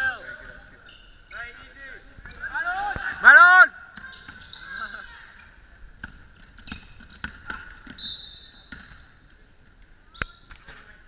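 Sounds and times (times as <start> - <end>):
short high squeaks: 4.0 - 5.6, 6.6 - 9.1.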